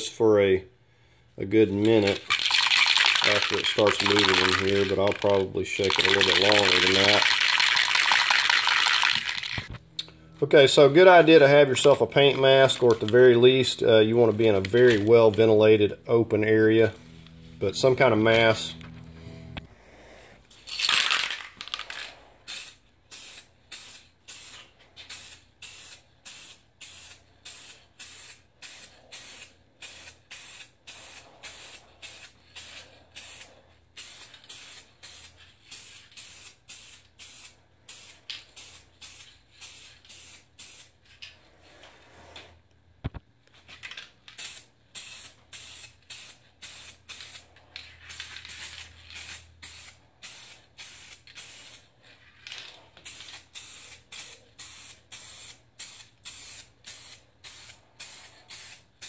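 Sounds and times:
spray paint can hissing: 0:02.2 - 0:09.7, 0:22.5 - 0:40.9, 0:44.4 - 0:47.4, 0:48.0 - 0:51.8, 0:53.0 - 0:59.0.

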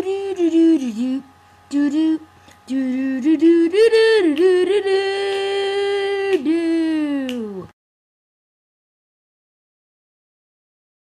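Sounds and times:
person singing unaccompanied: 0:00.0 - 0:07.8.

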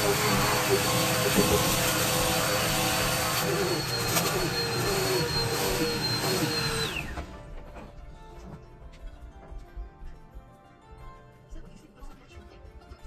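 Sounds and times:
vacuum cleaner whine: 0:00.0 - 0:08.6.

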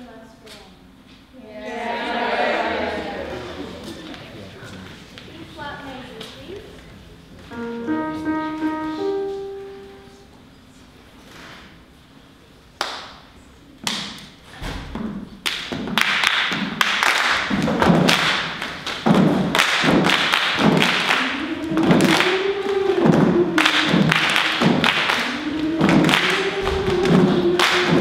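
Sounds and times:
girls' choir singing: 0:01.4 - 0:04.4, 0:19.9 - 0:28.0
body percussion claps and thumps: 0:13.8 - 0:28.0.

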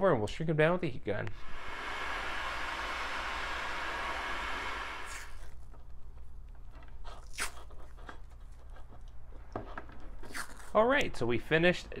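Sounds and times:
tape pulled off roll rasping: 0:02.4 - 0:05.9.

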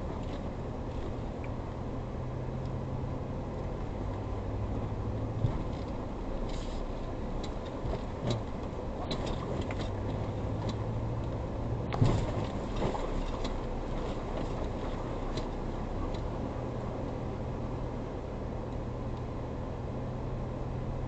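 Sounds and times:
car engine hum: 0:00.0 - 0:21.0
road noise on dirt road: 0:00.0 - 0:21.0
knocks and rattles over bumps: 0:05.2 - 0:16.4.

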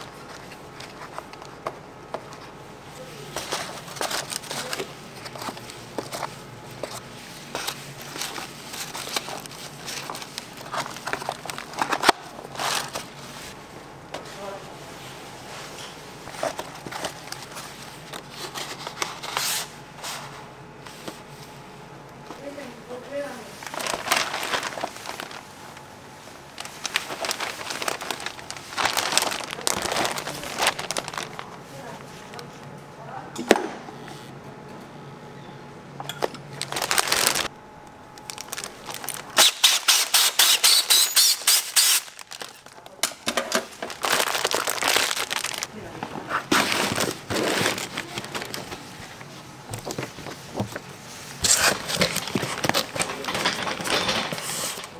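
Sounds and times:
low machine hum: 0:00.0 - 0:39.4
plastic bags crinkling: 0:03.4 - 0:13.1, 0:23.2 - 0:32.1, 0:36.5 - 0:37.5, 0:38.1 - 0:54.9.

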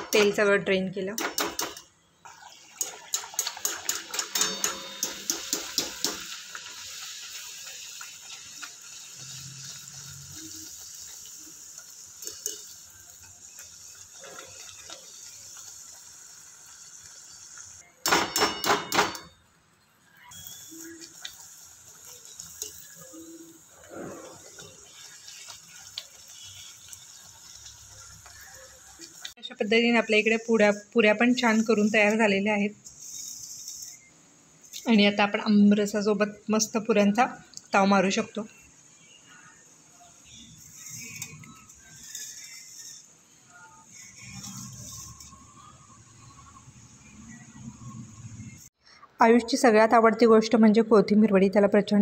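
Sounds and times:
food deep-frying in hot oil: 0:01.3 - 0:48.8
wire strainer clinking against pan: 0:02.8 - 0:06.2.

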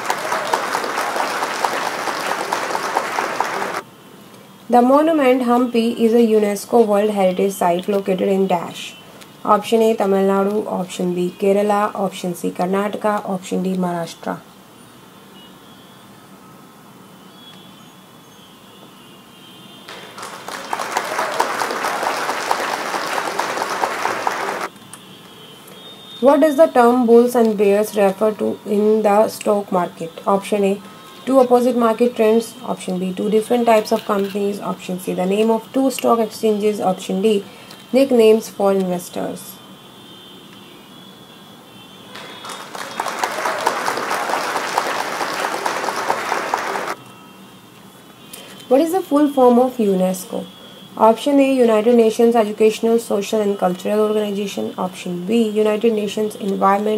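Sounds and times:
crowd clapping: 0:00.0 - 0:03.8, 0:19.9 - 0:24.7, 0:42.1 - 0:47.0.

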